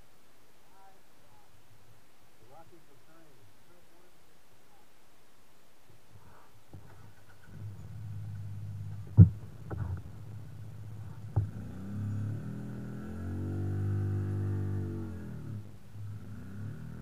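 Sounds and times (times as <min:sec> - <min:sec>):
engine running at low revs: 0:07.1 - 0:17.0
sharp knocks: 0:09.0 - 0:10.0.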